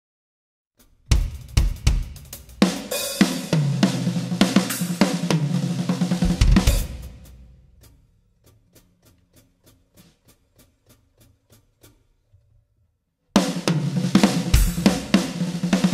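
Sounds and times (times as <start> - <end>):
drum kit playing: 0.8 - 10.8, 13.4 - 15.9.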